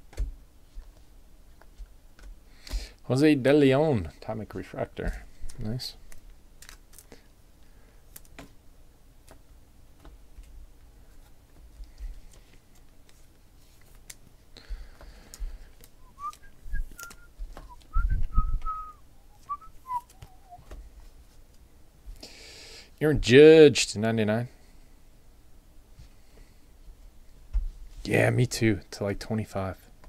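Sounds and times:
person whistling: 16.0s - 20.7s.

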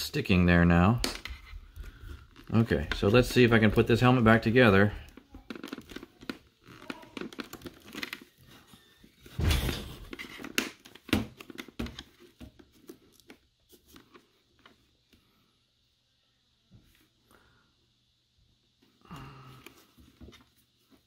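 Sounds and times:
plastic parts clicking and scraping: 1.0s - 14.8s.

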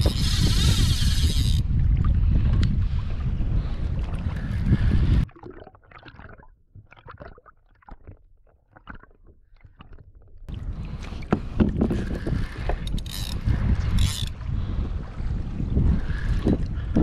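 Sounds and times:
wind on microphone: 0.0s - 5.3s, 10.5s - 17.0s
water splashing against hull: 0.0s - 17.0s
faint underwater clicks and crackles: 4.0s - 14.4s.

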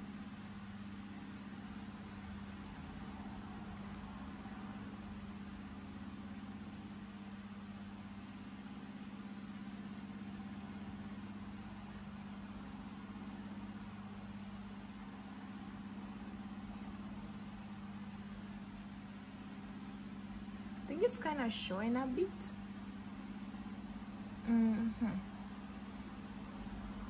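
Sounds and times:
low hum: 23.5s - 27.0s.

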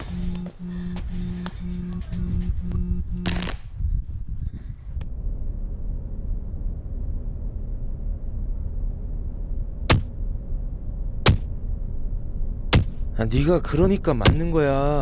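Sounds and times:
sharp blows: 0.0s - 3.8s
steady low rumble: 0.0s - 15.0s.

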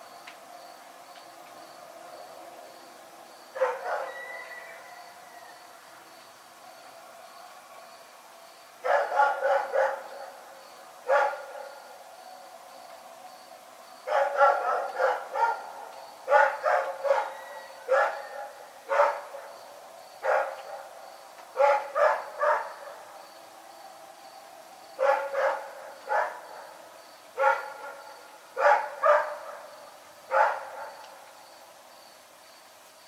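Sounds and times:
dog barking: 3.6s - 4.5s, 8.8s - 10.2s, 11.1s - 11.6s, 14.1s - 19.5s, 20.2s - 20.9s, 21.6s - 23.0s, 25.0s - 26.6s, 27.4s - 29.7s, 30.3s - 31.0s.

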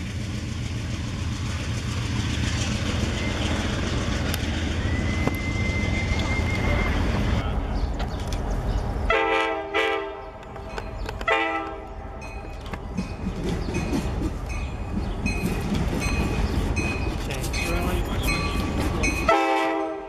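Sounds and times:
train rumble: 0.0s - 20.0s
train air horn blasts: 9.1s - 10.3s, 11.3s - 11.9s, 19.3s - 20.0s.

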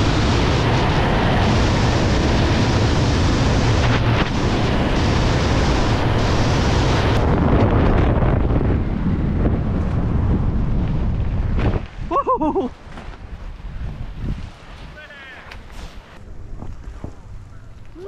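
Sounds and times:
wind rushing over microphone: 0.0s - 18.0s
person yelling: 15.0s - 15.5s.

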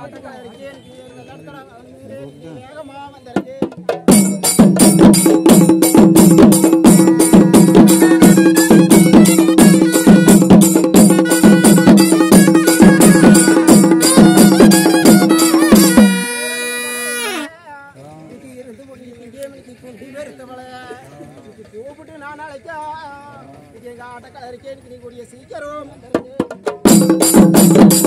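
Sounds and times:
drum beaten quickly: 3.2s - 17.5s, 26.1s - 28.0s.

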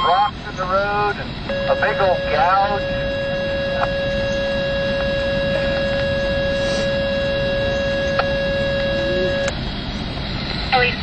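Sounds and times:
rough background rush: 0.0s - 11.0s
buzzer-like tone: 1.5s - 9.5s.

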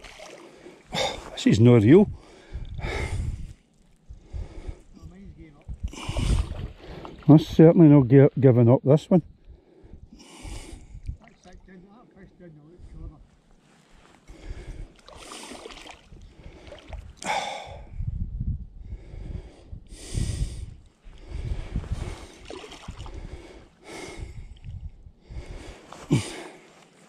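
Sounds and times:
man breathing heavily: 0.4s - 1.4s, 2.1s - 5.2s, 5.8s - 7.2s, 9.5s - 11.0s, 13.9s - 18.2s, 18.8s - 27.0s.

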